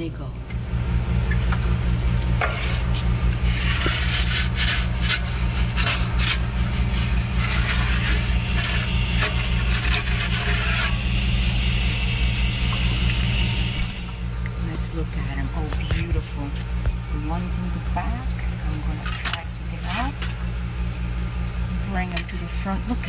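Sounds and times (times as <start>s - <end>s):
steady low hum: 0.0s - 23.0s
wooden peel scraping stone floor: 1.5s - 14.2s, 18.0s - 20.4s.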